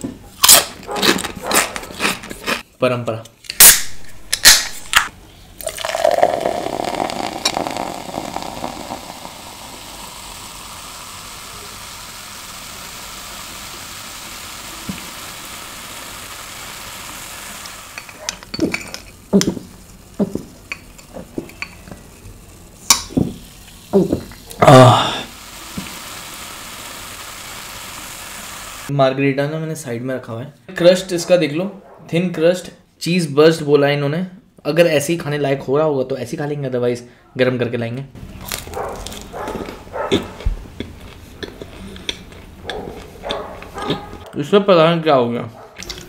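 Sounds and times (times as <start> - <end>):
can cracking open: 0.4 - 2.6, 3.4 - 11.9, 12.5 - 24.5, 38.4 - 40.4
soda pouring and fizzing: 5.6 - 28.9
glass and straw clicks and knocks: 18.0 - 22.0.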